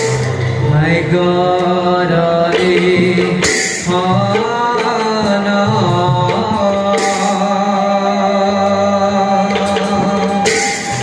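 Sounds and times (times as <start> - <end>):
singing with instrumental accompaniment: 0.0 - 11.0
bright cymbal crashes: 9.7 - 11.0.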